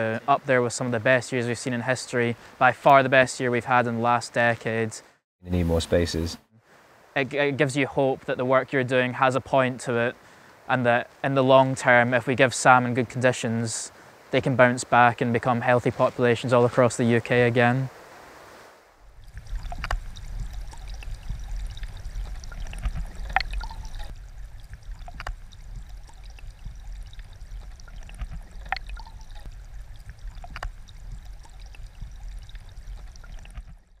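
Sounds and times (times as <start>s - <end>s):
sharp clicks: 25.0s - 33.9s.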